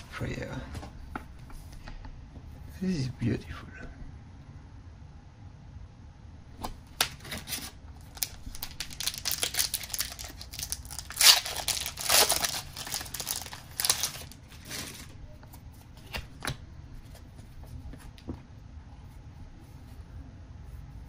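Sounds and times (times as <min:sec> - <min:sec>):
foil wrapper tearing and crinkling: 0:07.2 - 0:15.1.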